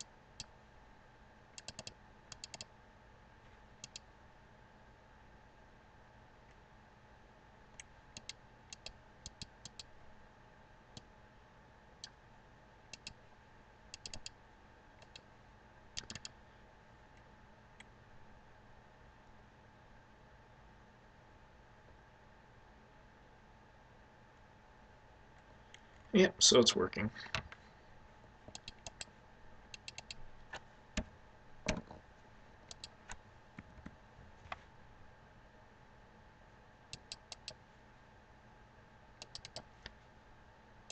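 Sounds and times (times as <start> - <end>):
faint steady hum: 0.0 - 40.9
computer mouse clicks: 1.6 - 2.7, 3.8 - 4.1, 7.8 - 9.9, 12.9 - 13.2, 13.9 - 14.4, 15.0 - 15.3, 16.0 - 16.4, 28.5 - 29.1, 29.7 - 31.1, 32.7 - 33.9, 36.9 - 37.6, 39.2 - 40.0.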